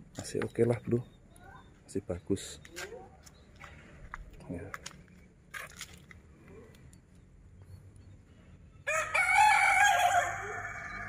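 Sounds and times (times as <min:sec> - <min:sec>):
rooster crowing: 0:08.8 - 0:11.0.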